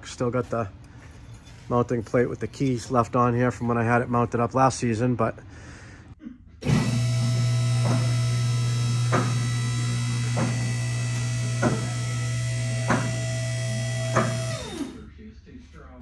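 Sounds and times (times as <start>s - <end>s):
hydraulic pump motor humming: 6.6s - 15.0s.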